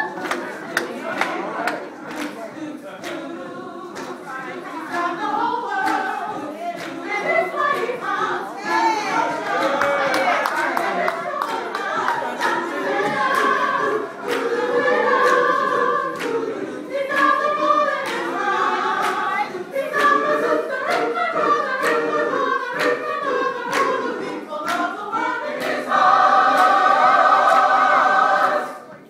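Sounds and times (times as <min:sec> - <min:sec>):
gospel choir singing: 0:00.0 - 0:29.0.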